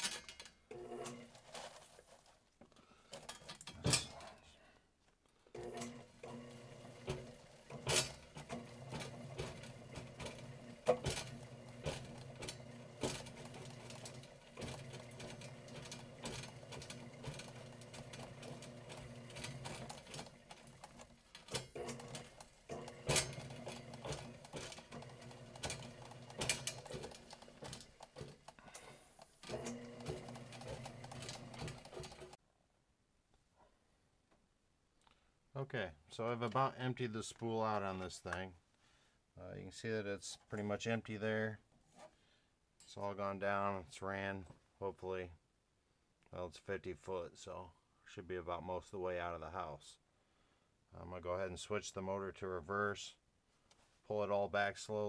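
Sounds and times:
drain auger motor humming: 0:05.6 - 0:32.4
spinning cable rattling and clanking: 0:05.7 - 0:32.4.

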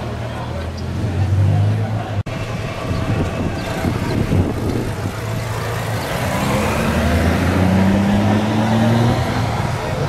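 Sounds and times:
motorcycle engine accelerating: 0:03.4 - 0:10.0.

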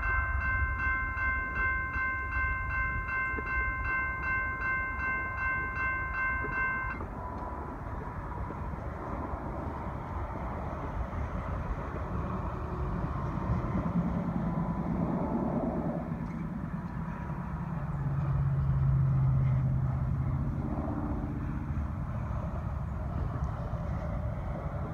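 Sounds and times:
low outdoor rumble: 0:00.0 - 0:24.9
vehicle engine hum: 0:00.0 - 0:24.9
wind: 0:00.0 - 0:24.9.

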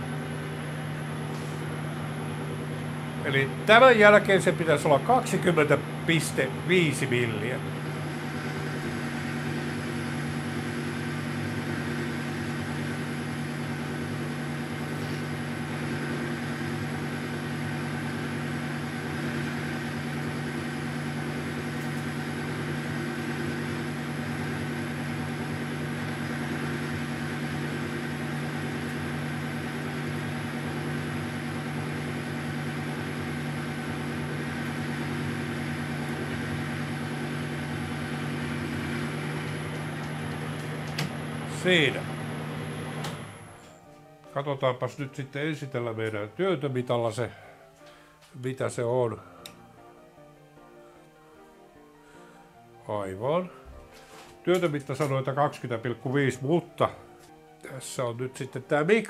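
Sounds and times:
lathe machine hum: 0:00.0 - 0:43.7.

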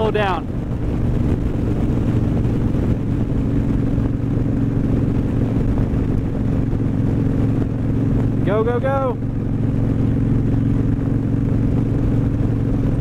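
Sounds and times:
motorcycle engine cruising: 0:00.0 - 0:13.0
wind rushing over microphone: 0:00.0 - 0:13.0.

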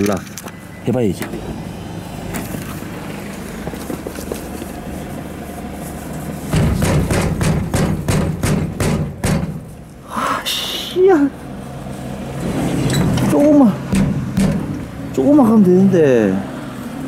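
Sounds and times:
machine knocks and rattles: 0:06.5 - 0:09.7, 0:13.9 - 0:14.9.

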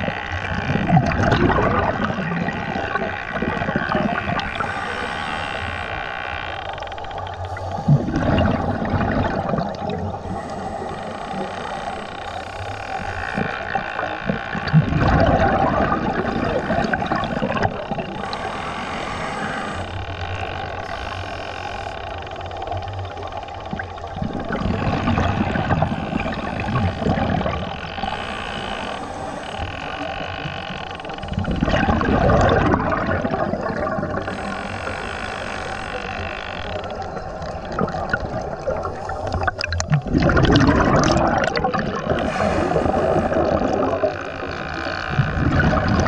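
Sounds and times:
exhaled bubbles underwater: 0:00.0 - 0:04.8, 0:07.1 - 0:18.4, 0:22.8 - 0:28.2, 0:29.9 - 0:35.0, 0:36.6 - 0:46.0
steady hum: 0:00.0 - 0:46.0
regulator hissing: 0:16.3 - 0:22.8, 0:33.5 - 0:37.8.

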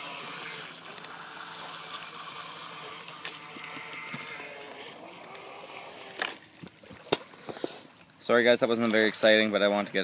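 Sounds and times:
small electric motor whining: 0:00.0 - 0:06.5.

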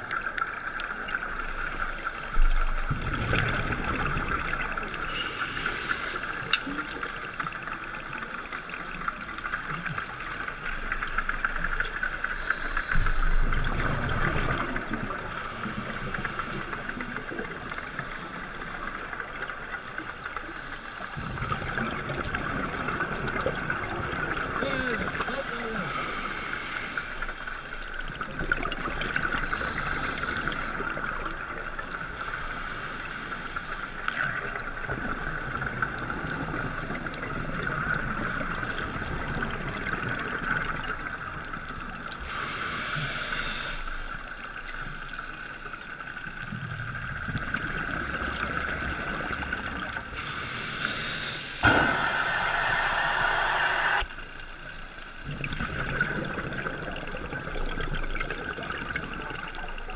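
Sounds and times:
muffled regulator breathing hiss: 0:05.0 - 0:06.8, 0:15.2 - 0:18.0, 0:25.0 - 0:27.8, 0:32.1 - 0:34.6, 0:42.2 - 0:44.6, 0:50.1 - 0:55.1
exhaled bubbles bursting: 0:51.6 - 0:54.1.

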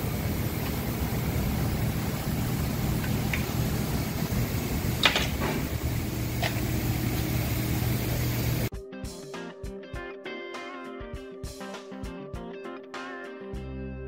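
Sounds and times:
workshop hum: 0:00.0 - 0:08.7.

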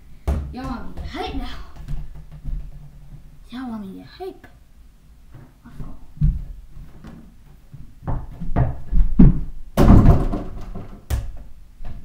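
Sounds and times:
ball and hoop banging door: 0:00.2 - 0:03.2, 0:08.0 - 0:12.0
feet landing on floor: 0:08.0 - 0:11.4.

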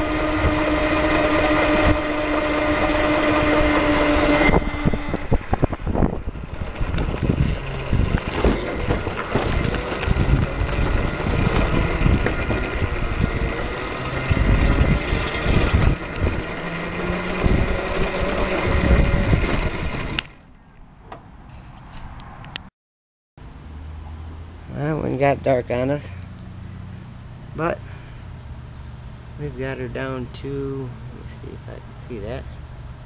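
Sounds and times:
faint motor whine: 0:00.0 - 0:20.5, 0:26.2 - 0:33.0
go-kart rumbling over rough ground: 0:00.0 - 0:21.2.

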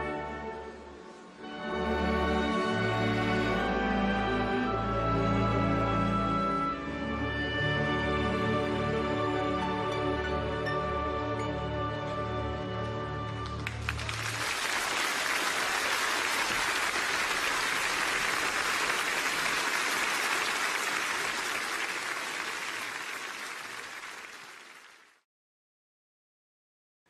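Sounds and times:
audience applauding: 0:13.4 - 0:25.2.

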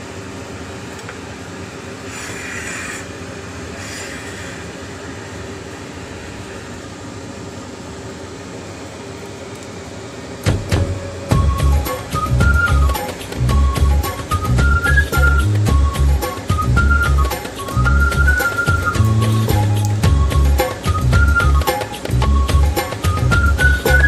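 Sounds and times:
mechanical hum and hiss: 0:00.0 - 0:24.0
sharp loud knocks: 0:10.4 - 0:11.0.

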